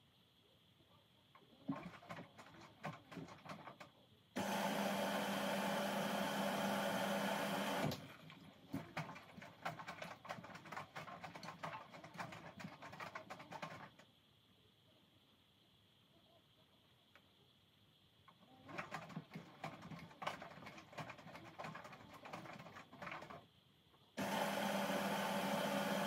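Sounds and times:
loud steady mechanical run: 0:04.4 - 0:08.0, 0:24.2 - 0:26.0.

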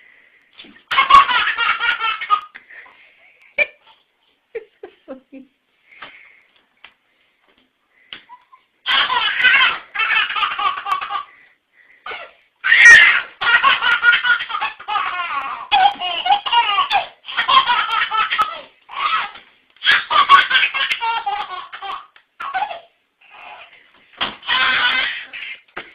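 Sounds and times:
baby laughing: 0:00.9 - 0:02.6, 0:08.3 - 0:11.4, 0:12.1 - 0:23.8, 0:24.4 - 0:25.7.

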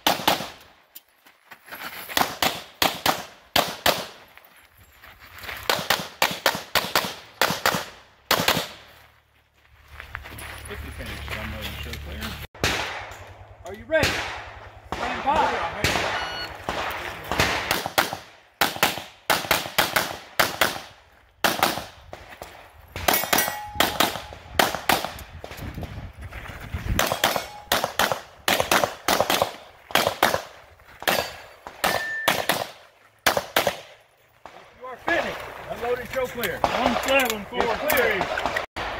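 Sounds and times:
rapid pistol shots: 0:00.0 - 0:00.6, 0:05.7 - 0:08.8, 0:12.6 - 0:13.1, 0:14.0 - 0:21.9, 0:23.0 - 0:25.2, 0:27.0 - 0:34.6.

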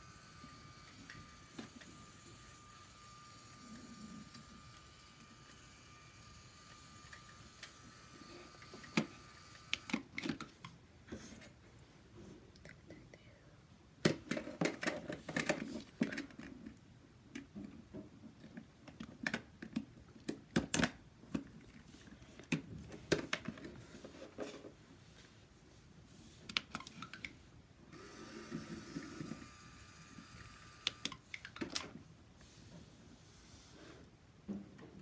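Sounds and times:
small electric motor whirring: 0:00.0 - 0:10.0, 0:27.9 - 0:31.2
plastic parts clicking together: 0:18.4 - 0:21.6.

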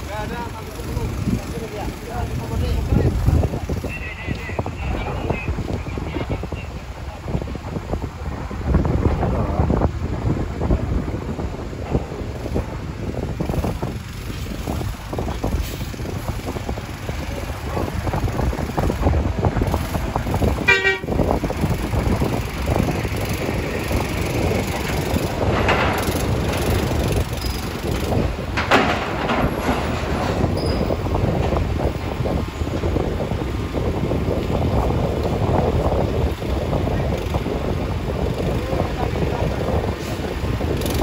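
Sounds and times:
low vehicle rumble: 0:00.0 - 0:41.0
wind buffeting microphone: 0:00.0 - 0:41.0
short horn toot: 0:20.6 - 0:21.1.

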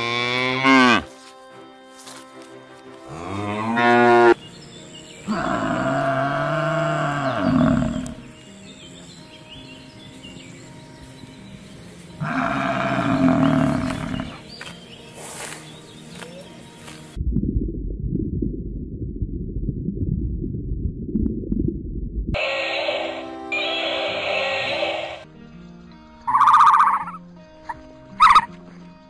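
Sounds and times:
cattle mooing: 0:00.0 - 0:01.1, 0:03.1 - 0:04.4, 0:05.3 - 0:08.2, 0:12.2 - 0:14.4.

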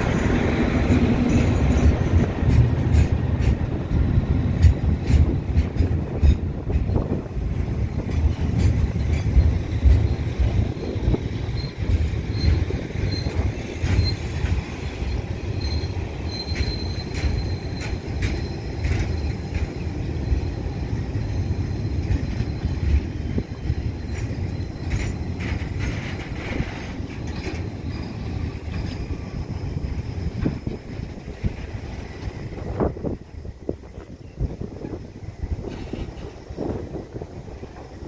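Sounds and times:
train wheels rumbling on track: 0:00.0 - 0:38.0
wheel squeal: 0:11.4 - 0:30.8.

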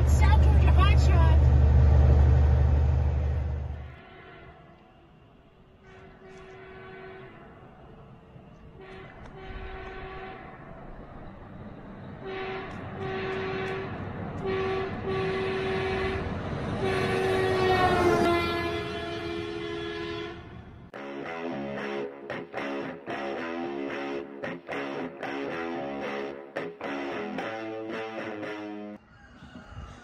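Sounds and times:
train rumbling: 0:00.0 - 0:21.0
train horn blasts: 0:03.7 - 0:05.0, 0:05.8 - 0:07.7, 0:08.8 - 0:10.7, 0:12.2 - 0:20.7
guitar music: 0:21.0 - 0:29.0.

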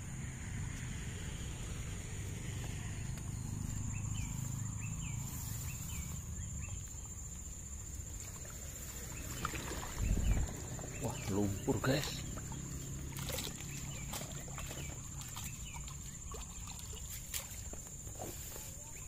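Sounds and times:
high-pitched insect trill: 0:03.0 - 0:19.0
low microphone rumble: 0:09.7 - 0:12.6.

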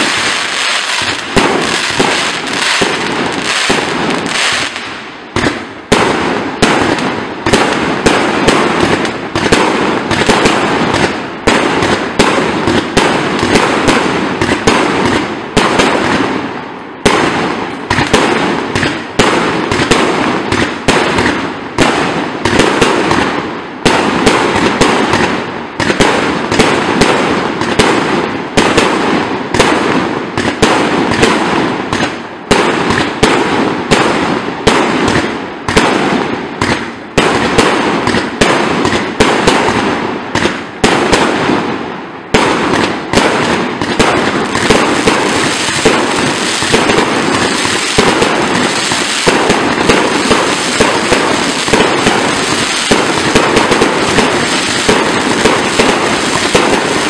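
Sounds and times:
firework cake bangs: 0:42.3 - 0:57.0.

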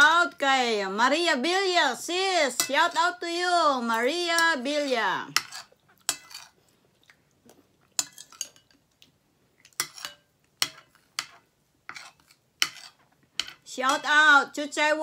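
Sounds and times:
fork clinking on ceramic bowl: 0:05.4 - 0:06.5, 0:08.0 - 0:08.8, 0:09.8 - 0:14.0.

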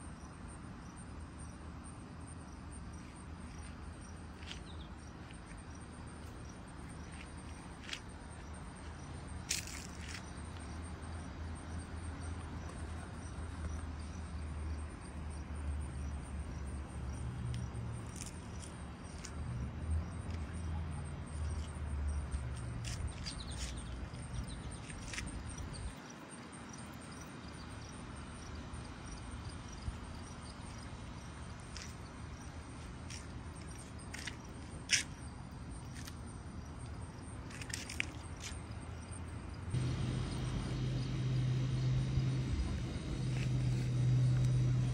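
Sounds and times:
faint insect chirping: 0:00.0 - 0:44.9
low rumble: 0:39.8 - 0:44.9.

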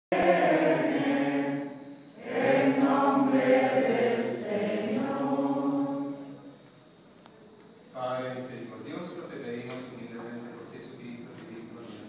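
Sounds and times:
congregation singing a chant: 0:00.1 - 0:06.7.

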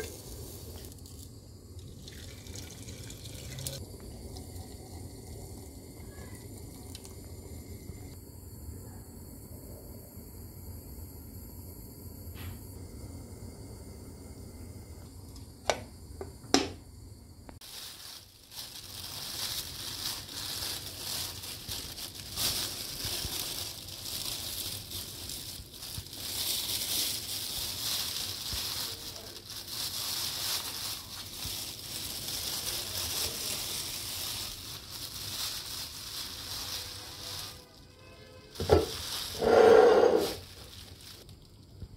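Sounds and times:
plastic bag crinkling: 0:00.0 - 0:05.4, 0:17.6 - 0:37.8, 0:38.5 - 0:41.7.

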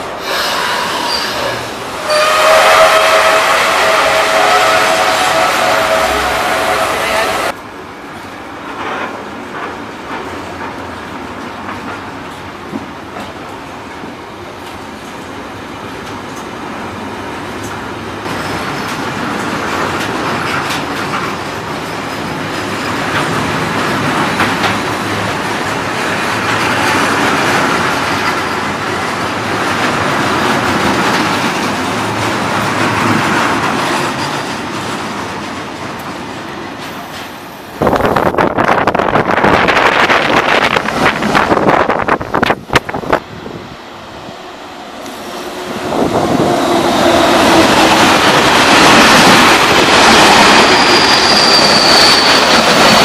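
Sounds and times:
train wheels rumbling on rails: 0:00.0 - 0:53.0
wind buffeting microphone: 0:37.8 - 0:44.3, 0:45.6 - 0:50.5.

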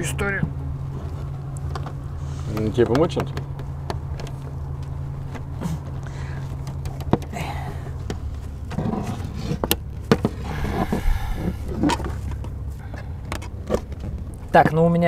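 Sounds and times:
low hum: 0:09.9 - 0:13.5.

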